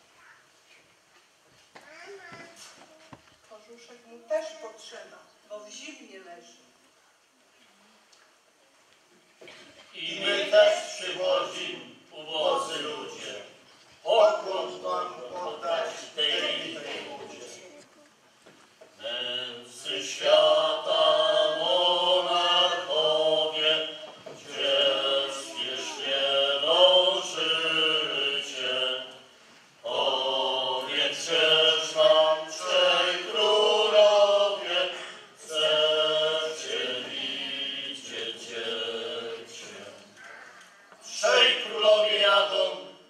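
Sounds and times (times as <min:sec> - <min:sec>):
people singing a carol: 0:09.9 - 0:17.8, 0:19.0 - 0:40.3, 0:41.0 - 0:43.0.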